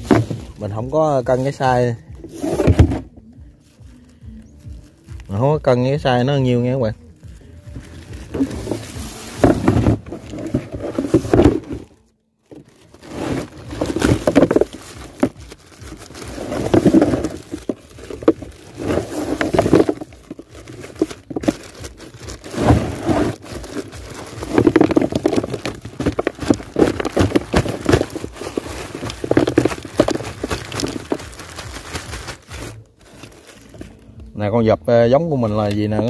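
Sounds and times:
plastic bags rustling: 0.0s - 5.9s, 6.6s - 34.2s
clams clattering: 12.5s - 33.9s.

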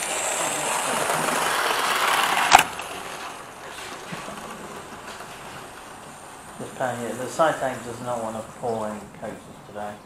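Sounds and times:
model train running on track: 0.0s - 10.0s.

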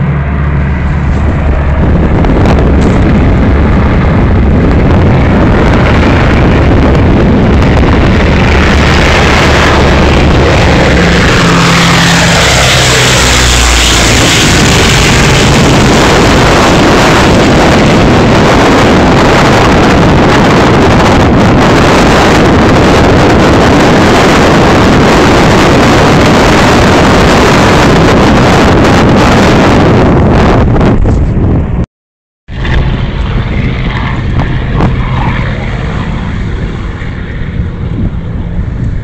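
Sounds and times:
aircraft engine drone overhead: 0.0s - 31.8s, 32.5s - 39.0s
motorboat running: 0.0s - 31.8s, 32.5s - 39.0s
wind buffeting microphone: 0.0s - 31.8s, 32.5s - 39.0s.

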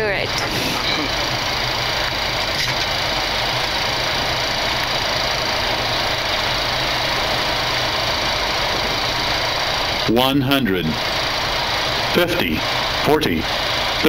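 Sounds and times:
jet engines humming: 0.0s - 14.0s
rush of airflow: 0.2s - 14.0s.

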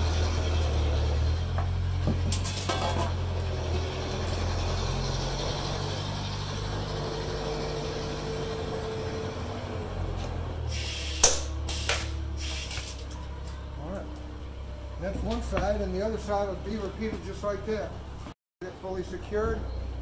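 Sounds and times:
rivet gun air hiss: 10.7s - 13.0s.

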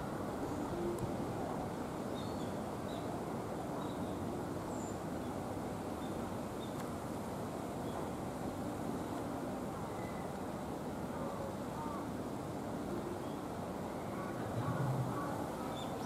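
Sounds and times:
low outdoor background noise: 0.0s - 16.0s
faint bird chirps: 9.9s - 10.4s.

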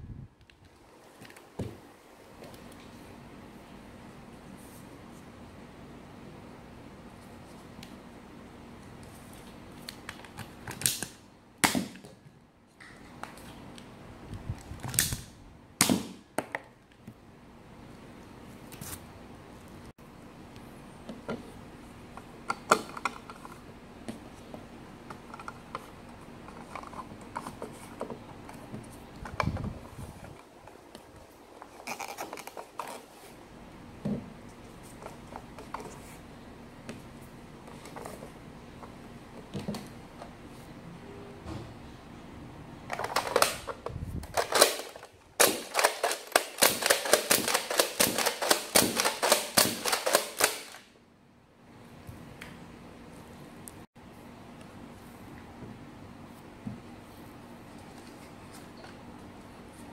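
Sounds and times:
plastic clicks and scraping: 25.0s - 31.0s, 31.6s - 33.1s, 42.9s - 50.8s.

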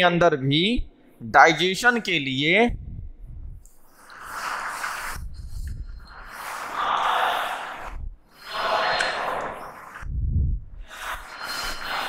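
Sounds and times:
duster rubbing on whiteboard: 4.0s - 10.0s, 10.9s - 12.0s
dull low bump: 10.0s - 10.8s.

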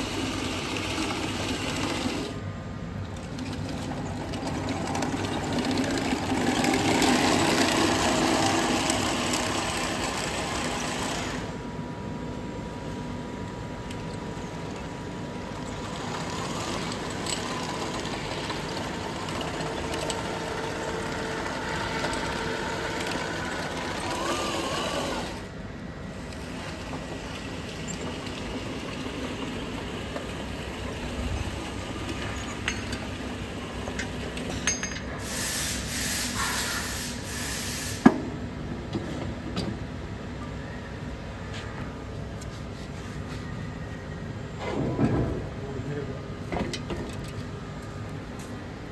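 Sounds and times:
toy tank motor whine: 21.8s - 25.4s.

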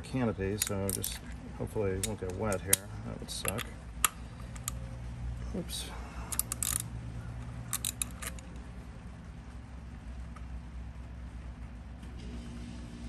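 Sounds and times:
ratchet wrench clicking: 0.6s - 1.4s, 2.0s - 4.8s, 6.3s - 8.6s.

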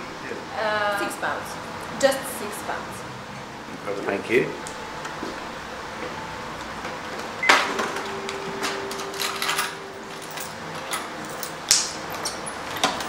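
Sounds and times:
coins clinking: 7.5s - 13.0s.

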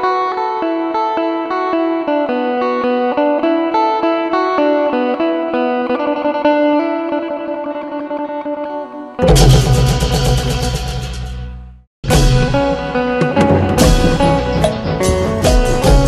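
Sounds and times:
plucked string melody: 12.1s - 16.0s.

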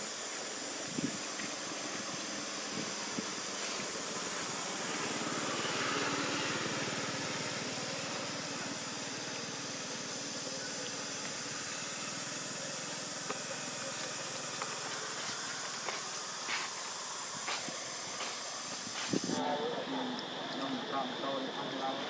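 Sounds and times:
vehicle engine running: 0.0s - 19.4s.

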